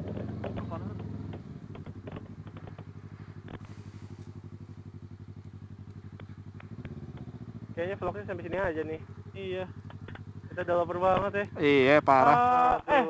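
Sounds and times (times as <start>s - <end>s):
motorcycle engine idling: 0.0s - 13.0s
light clicks: 5.4s - 7.3s.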